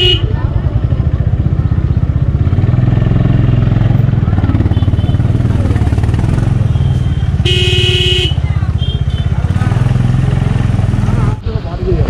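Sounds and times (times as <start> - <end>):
motorcycle horn: 0.0 - 0.4, 4.5 - 5.6, 6.3 - 9.6
motorcycle engine running: 0.0 - 11.4.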